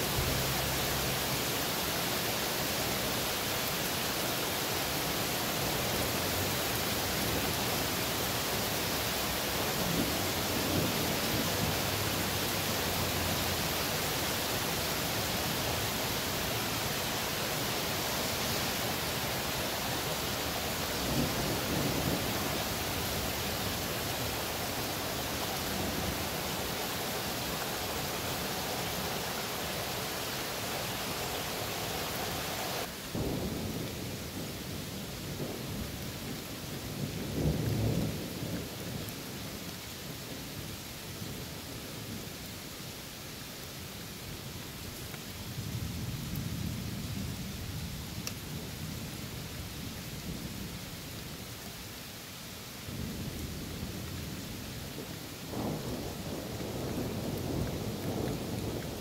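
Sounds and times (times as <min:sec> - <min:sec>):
rain hissing: 0:00.0 - 0:59.0
thunder rumbles: 0:17.4 - 0:29.0, 0:32.8 - 0:39.6, 0:52.8 - 0:59.0.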